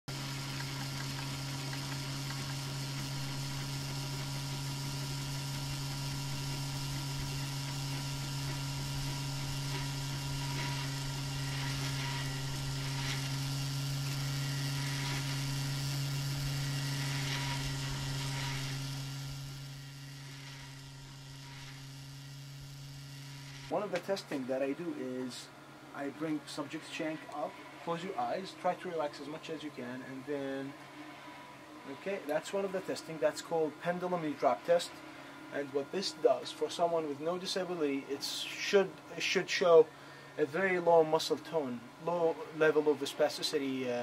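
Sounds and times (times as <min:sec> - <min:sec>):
printer ticks and whirs: 0:00.1 - 0:19.7
printer mechanical hum: 0:00.1 - 0:44.0.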